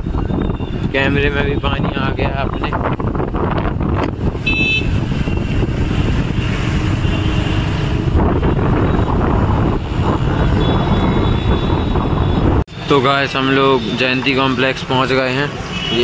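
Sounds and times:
wind buffeting microphone: 0:00.0 - 0:12.7
traffic on wet road: 0:00.0 - 0:16.0.

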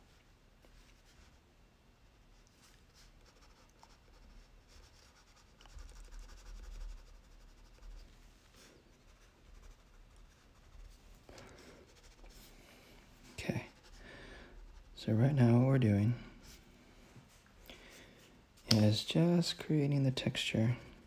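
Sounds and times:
crayon scratching on paper: 0:02.9 - 0:12.4, 0:13.4 - 0:14.0.

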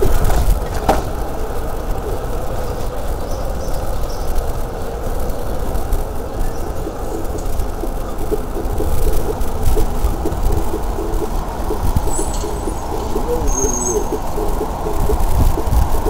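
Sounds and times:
bicycle rattling on pavement: 0:00.0 - 0:16.0
wind buffeting microphone: 0:00.0 - 0:16.0.

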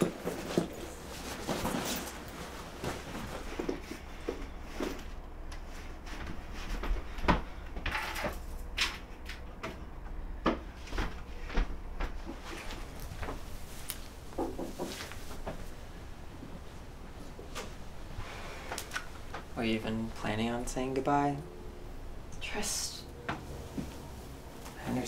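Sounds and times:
knocks and clicks of packing: 0:00.0 - 0:05.0, 0:14.3 - 0:15.6.

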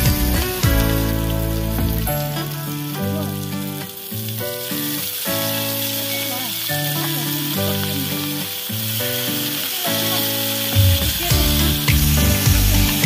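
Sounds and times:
heavy bass line: 0:00.0 - 0:02.3, 0:10.8 - 0:13.0
background music of held notes: 0:00.0 - 0:13.0
vegetables sizzling in a wok: 0:03.2 - 0:13.0.

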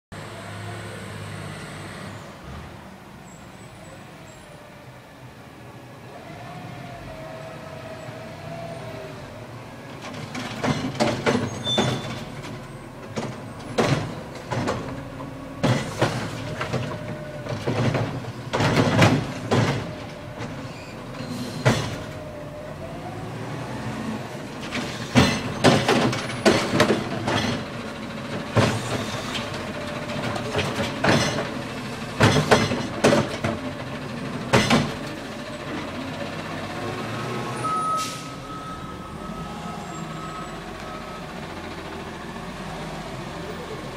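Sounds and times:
garbage truck diesel engine: 0:00.1 - 0:43.9
trash carts clanking and banging: 0:09.9 - 0:23.1, 0:24.2 - 0:42.3.

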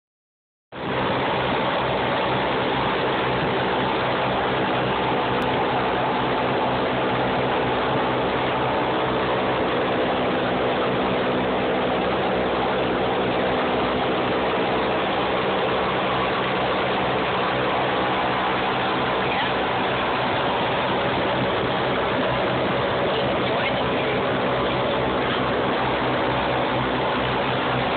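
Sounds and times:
propeller engines droning: 0:00.8 - 0:27.9.

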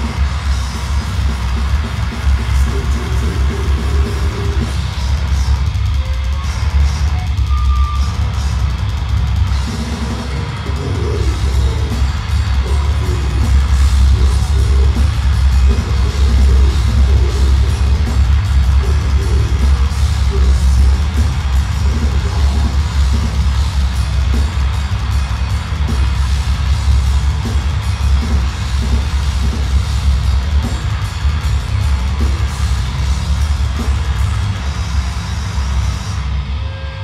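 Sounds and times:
metal band playing live: 0:00.0 - 0:37.0
growled metal vocals: 0:08.2 - 0:24.6.

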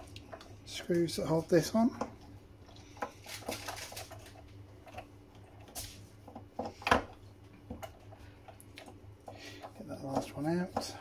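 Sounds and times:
small clicks and scrapes of parts: 0:02.7 - 0:07.0.

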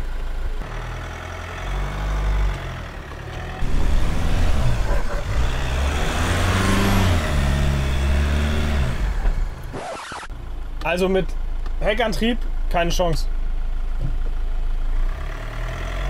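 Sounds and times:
diesel engine revving: 0:00.0 - 0:10.9, 0:14.2 - 0:16.0.

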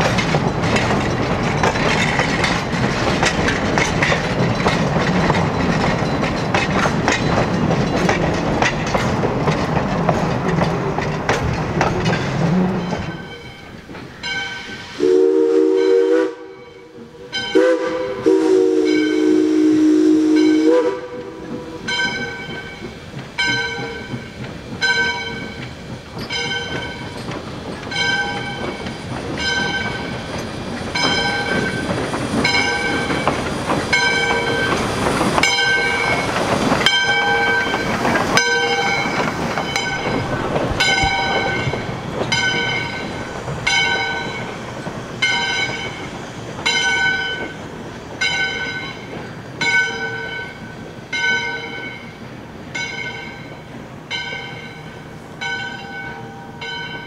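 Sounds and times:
locomotive bell ringing: 0:00.0 - 0:08.9, 0:11.6 - 0:14.9, 0:15.8 - 0:19.5, 0:20.3 - 0:57.0
steam exhaust hiss and chuff: 0:00.0 - 0:52.9
steam locomotive whistle: 0:14.5 - 0:22.7, 0:33.9 - 0:40.2.

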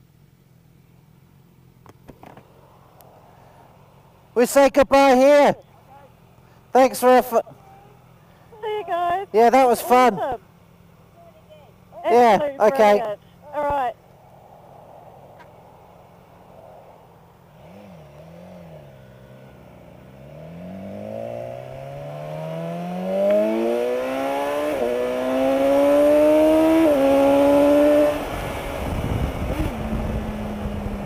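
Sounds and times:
motorcycle engine revving and accelerating: 0:17.5 - 0:31.0.

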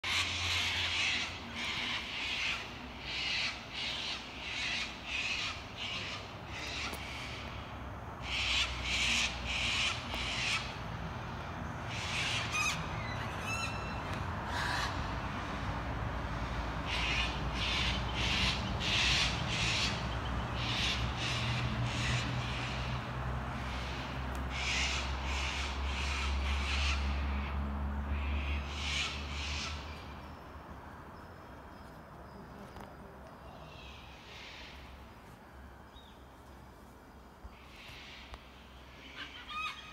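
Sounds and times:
kookaburras laughing calls: 0:39.0 - 0:39.9.

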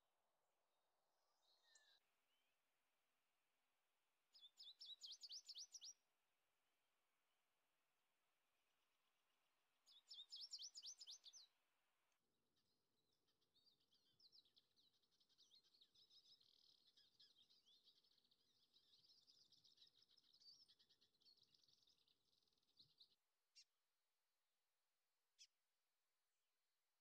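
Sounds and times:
songbird twittering: 0:04.4 - 0:06.0, 0:09.9 - 0:11.5.

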